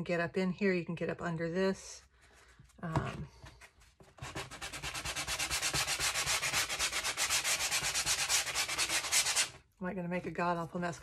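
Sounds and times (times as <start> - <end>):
sandpaper sanding wood: 4.2 - 9.6.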